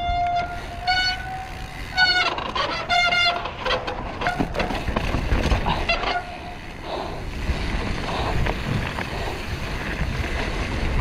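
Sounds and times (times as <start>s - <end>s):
mountain bike clattering over rocks: 0.1s - 11.0s
wind on microphone: 7.2s - 11.0s.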